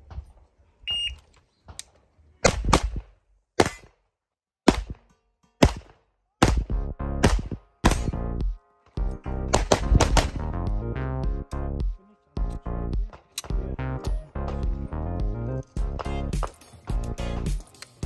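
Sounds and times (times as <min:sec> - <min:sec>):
shot timer beep: 0:00.9 - 0:01.2
handgun shots: 0:04.6 - 0:08.2, 0:09.5 - 0:10.4.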